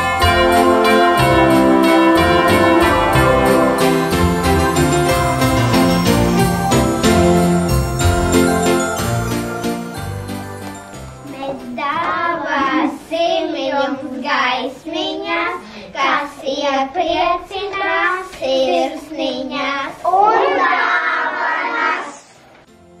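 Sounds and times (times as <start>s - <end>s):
children singing together: 11.4s - 22.4s.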